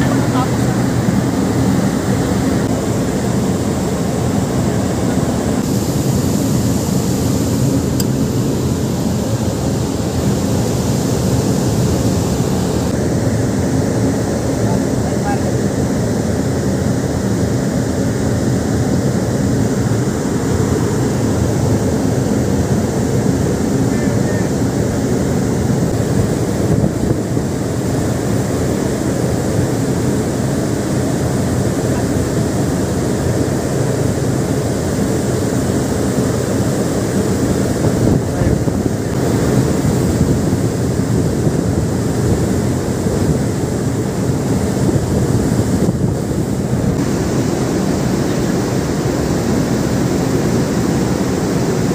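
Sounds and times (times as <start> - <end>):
low steady drone: 0.0 - 51.9
sea washing along ship hull: 0.0 - 51.9
wind buffeting microphone: 24.0 - 28.2, 37.5 - 51.7.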